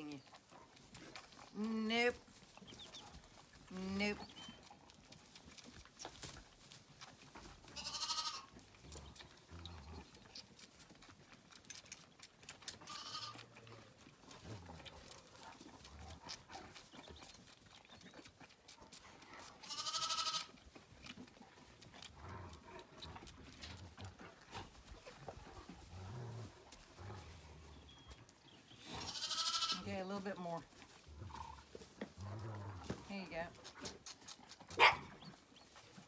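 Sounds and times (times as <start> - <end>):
lambs bleating: 7.7 - 8.5, 12.8 - 13.5, 19.6 - 20.6, 28.9 - 29.9.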